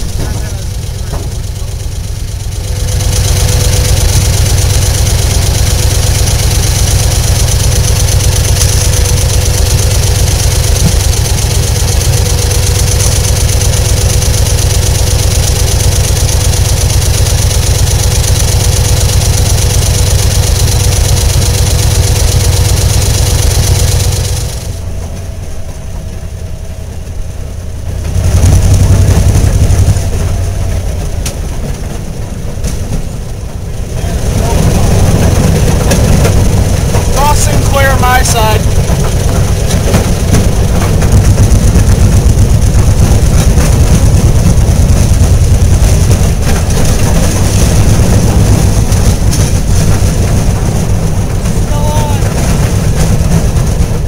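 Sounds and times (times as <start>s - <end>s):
railroad motorcar engine droning: 0.0s - 54.0s.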